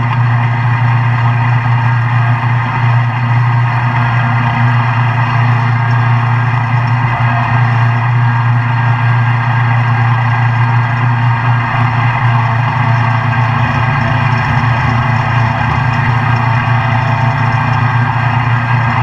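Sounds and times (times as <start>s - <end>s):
lawn mower engine droning: 0.0s - 19.0s.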